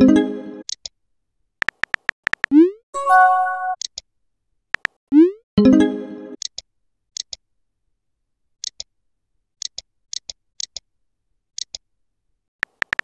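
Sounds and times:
phone keyboard tap clicks: 1.6 - 2.5, 12.6 - 13.0.

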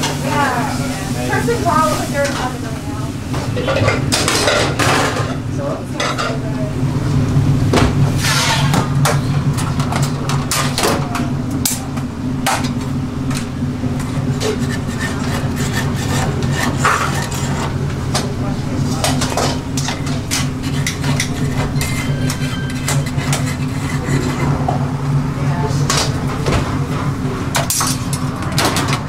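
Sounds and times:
extractor fans and burners humming: 0.0 - 29.0
metal pans and utensils clinking: 8.2 - 11.8, 18.9 - 24.7.

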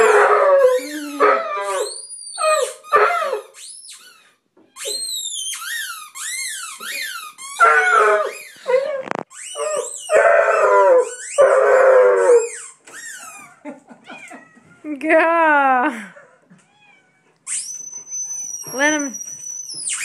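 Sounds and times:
dog whining and howling: 0.0 - 3.6, 7.6 - 12.6, 17.6 - 19.9.

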